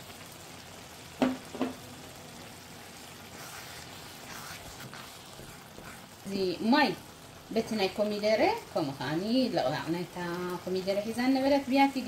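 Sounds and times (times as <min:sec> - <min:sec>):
sauce simmering and sizzling: 0:00.0 - 0:12.0
wooden spoon stirring: 0:02.8 - 0:06.6.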